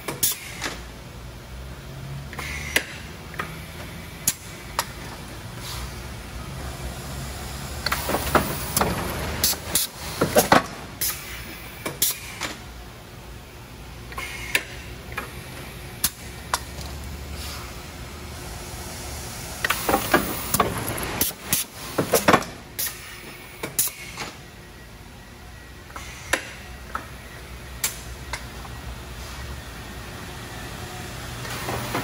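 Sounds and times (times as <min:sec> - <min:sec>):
steady low industrial hum: 0:00.8 - 0:31.7.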